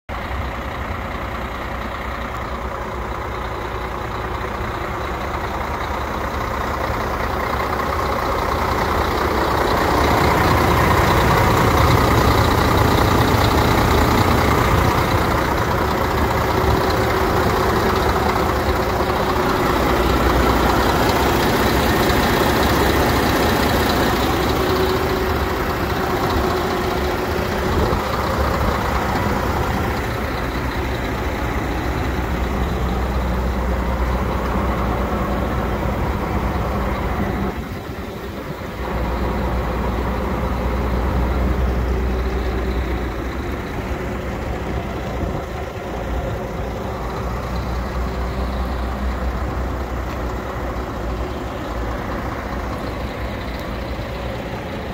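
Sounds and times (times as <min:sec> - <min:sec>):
diesel truck engine idling: 0:00.1 - 0:54.9.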